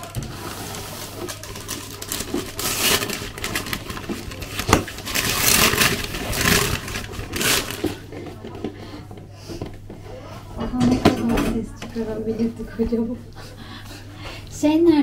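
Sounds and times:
cardboard lid scraping and rustling: 0.0s - 8.0s.

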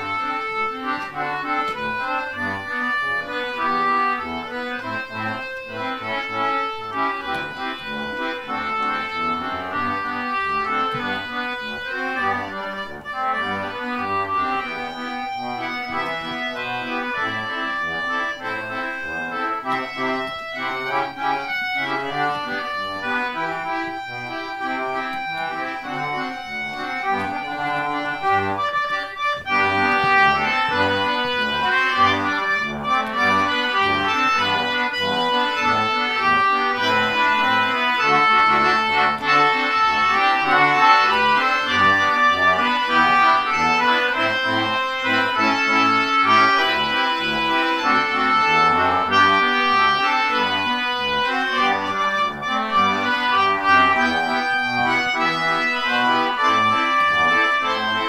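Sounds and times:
concertina band playing a march: 0.0s - 58.0s.

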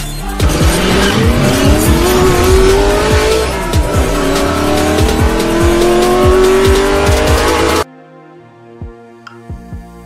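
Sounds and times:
music with a heavy beat: 0.0s - 7.8s, 8.8s - 10.0s
racing car engine revving: 0.3s - 7.8s.

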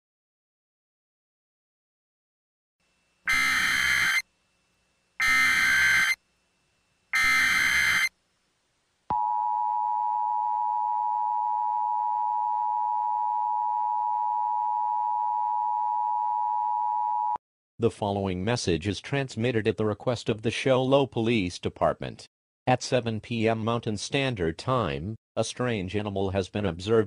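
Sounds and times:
alert header data bursts: 3.3s - 4.2s, 5.2s - 6.2s, 7.2s - 8.1s
two-tone attention signal: 3.3s - 4.2s, 5.2s - 6.2s, 7.2s - 8.1s.

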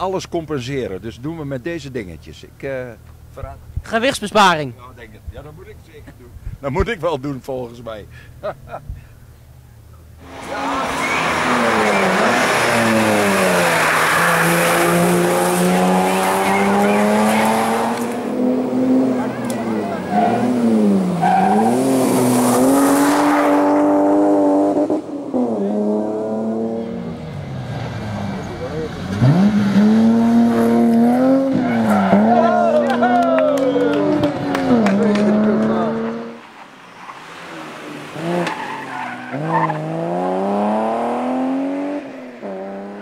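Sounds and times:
rally car engine accelerating: 10.2s - 36.5s, 37.4s - 43.0s.

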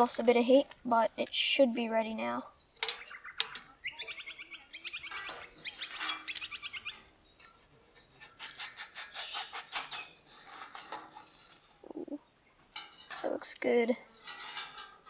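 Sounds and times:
small birds chirping: 0.2s - 10.2s, 11.1s - 14.6s
metal spatula scraping steel: 5.1s - 12.1s, 12.7s - 15.0s.

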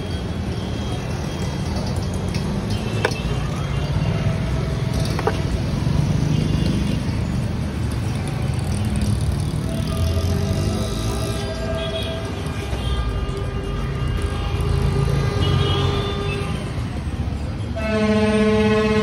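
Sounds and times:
street traffic: 0.0s - 19.0s
vehicle engine rumbling: 1.3s - 12.2s.

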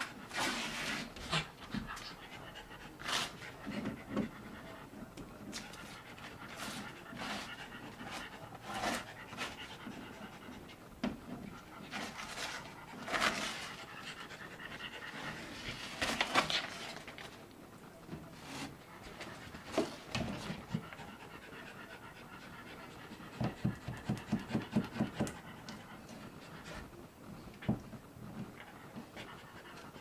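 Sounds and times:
dog panting hard: 0.0s - 17.0s, 19.0s - 27.0s, 27.6s - 30.0s
wallpaper tearing: 0.3s - 1.5s.

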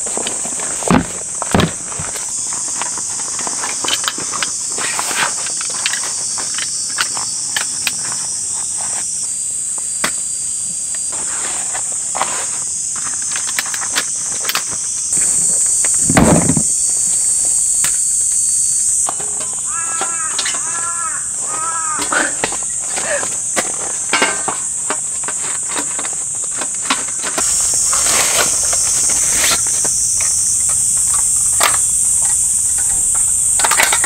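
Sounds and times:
high-pitched insect chorus: 0.0s - 34.0s
rustling thump: 16.0s - 16.8s.

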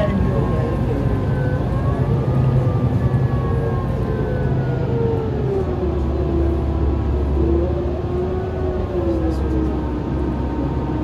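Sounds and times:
bus engine rumbling: 0.0s - 11.0s.

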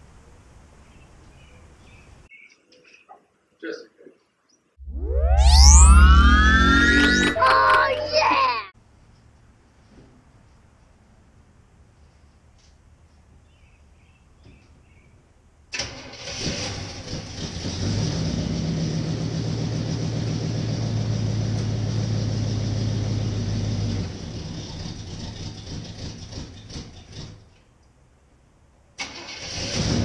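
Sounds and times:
truck engine cranking and running: 15.7s - 27.6s, 29.0s - 30.0s.

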